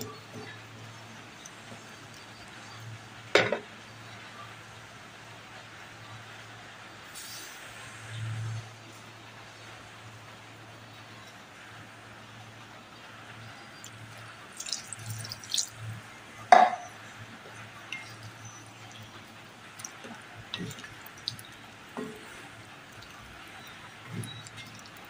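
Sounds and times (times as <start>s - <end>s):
thick curry bubbling in wok: 13.2s - 25.0s.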